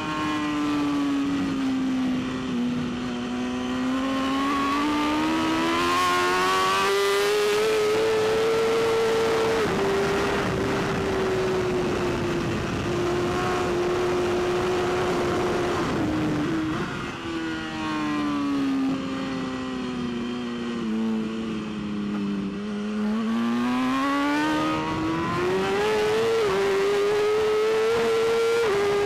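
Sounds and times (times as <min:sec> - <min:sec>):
motorcycle engine at speed: 0:00.0 - 0:29.0.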